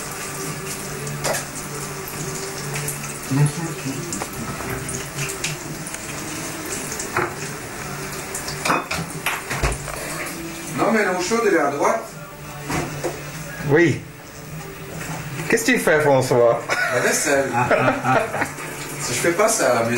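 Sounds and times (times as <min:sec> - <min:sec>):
eggs and bacon sizzling: 0:00.0 - 0:19.9
dishes and cutlery clinking: 0:01.2 - 0:01.6, 0:08.5 - 0:10.3.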